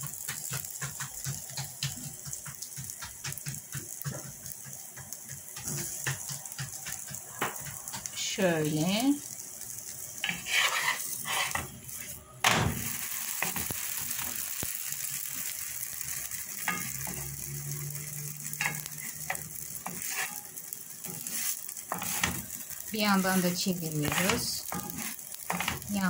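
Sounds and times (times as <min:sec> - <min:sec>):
flatbread sizzling in a pan: 0:00.0 - 0:26.0
wooden spatula knocking on pan: 0:00.1 - 0:08.1.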